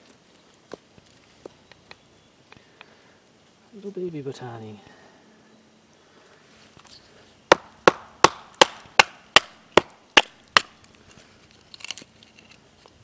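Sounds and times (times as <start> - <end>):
wood splitting crackle: 7.5 - 13.0.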